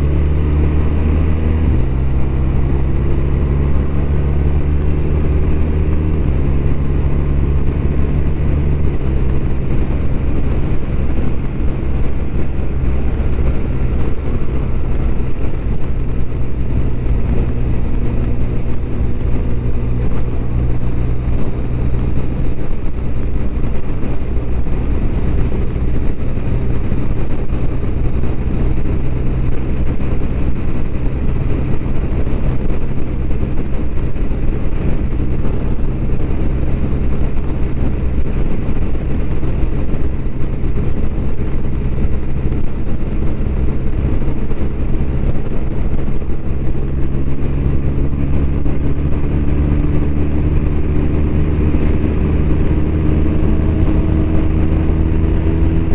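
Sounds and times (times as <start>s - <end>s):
motorcycle engine running: 0.0s - 55.9s
road noise rushing: 0.0s - 55.9s.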